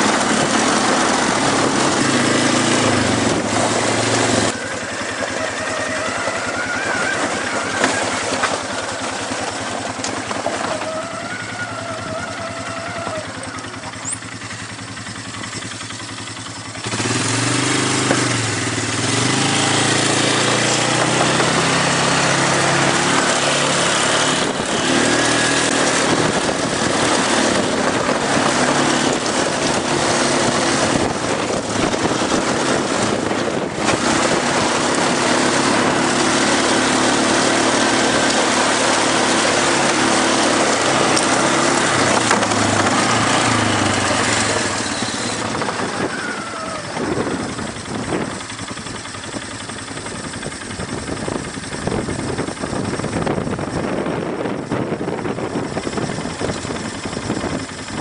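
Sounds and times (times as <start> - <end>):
wind buffeting microphone: 0.0 - 4.7, 16.9 - 58.0
atv engine running: 0.0 - 58.0.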